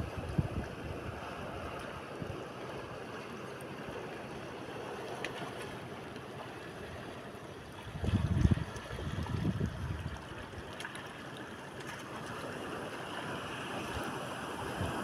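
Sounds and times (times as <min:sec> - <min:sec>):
wind buffeting microphone: 0:00.0 - 0:02.4, 0:07.8 - 0:10.4, 0:13.9 - 0:15.0
shallow seawater washing: 0:00.0 - 0:15.0.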